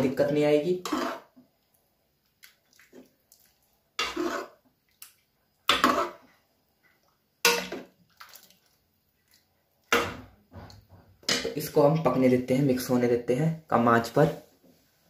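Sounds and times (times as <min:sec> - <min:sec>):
water splashing into pot: 0:02.3 - 0:06.2, 0:07.1 - 0:10.5.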